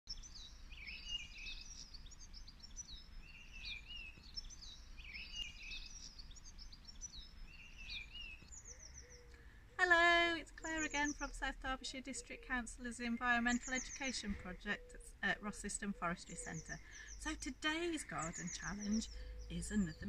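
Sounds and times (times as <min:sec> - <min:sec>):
songbirds chirping: 0:00.1 - 0:20.0
woman speaking: 0:09.8 - 0:20.0.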